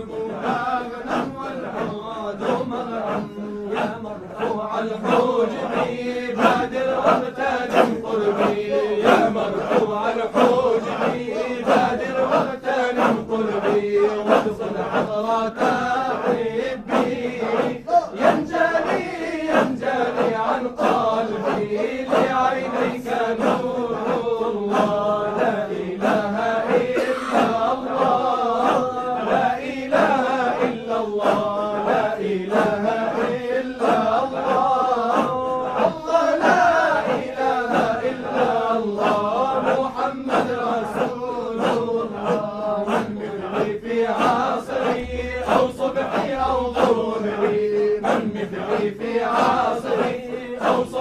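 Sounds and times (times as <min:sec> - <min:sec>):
held vocal drone: 0:00.0 - 0:51.0
men chanting rhythmically: 0:00.0 - 0:51.0
person singing a melody: 0:40.6 - 0:51.0.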